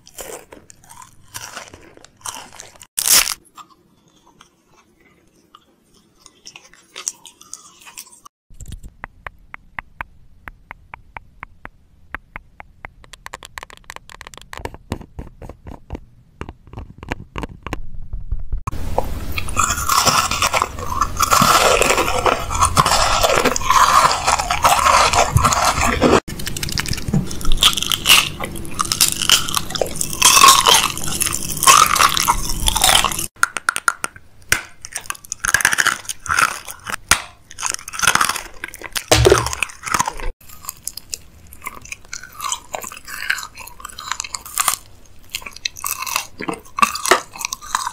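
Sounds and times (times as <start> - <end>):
crunchy chewing: 0.0 - 17.8, 19.4 - 33.3, 34.7 - 47.9
wet mouth clicks and smacks: 8.6 - 15.8.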